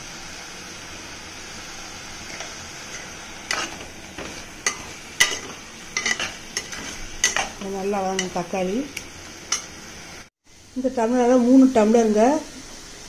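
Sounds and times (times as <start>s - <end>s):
masala sizzling in a pot: 0.0s - 13.0s
metal spoon scraping a pot: 2.3s - 7.6s.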